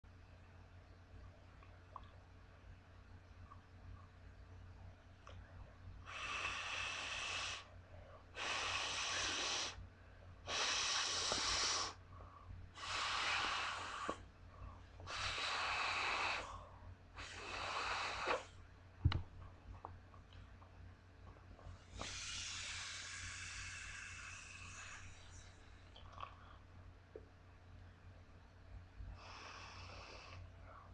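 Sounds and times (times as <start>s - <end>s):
breath blown into ball valve: 8.4s - 9.8s, 10.5s - 12.0s, 17.2s - 18.5s, 21.9s - 25.3s.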